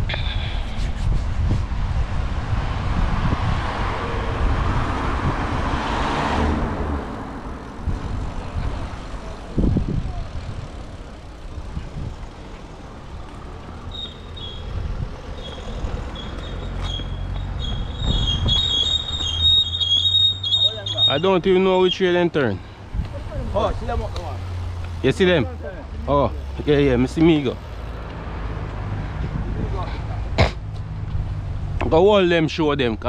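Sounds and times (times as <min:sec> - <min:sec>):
low traffic rumble: 0:00.0 - 0:33.0
traffic rush: 0:00.0 - 0:33.0
high thin squeaking: 0:13.8 - 0:22.0.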